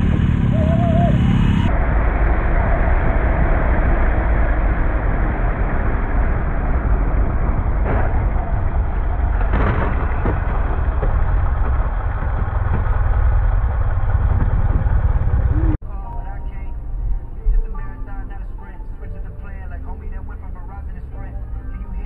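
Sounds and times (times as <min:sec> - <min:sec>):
wind noise: 0:00.0 - 0:15.8
vehicle engine rumble: 0:00.0 - 0:22.0
crash: 0:01.7 - 0:15.5.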